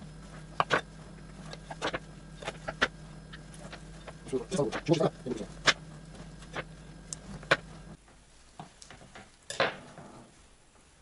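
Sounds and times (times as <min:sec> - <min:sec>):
knife scrape: 0:00.6 - 0:02.8.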